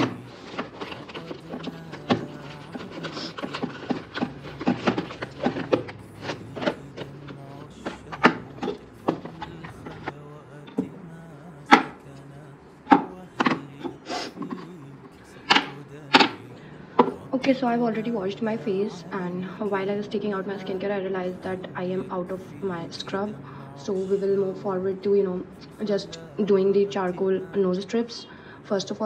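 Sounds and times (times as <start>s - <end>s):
objects knocking and clattering: 0.0s - 7.2s
steady low hum: 0.0s - 29.0s.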